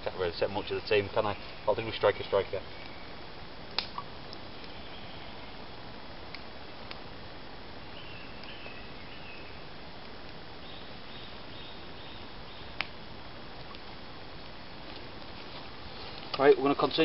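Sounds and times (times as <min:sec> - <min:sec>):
campfire crackling: 0:00.0 - 0:17.0
fire popping: 0:00.0 - 0:17.0
bird chirping: 0:00.4 - 0:03.2, 0:04.2 - 0:05.6, 0:07.8 - 0:09.7, 0:10.6 - 0:12.8.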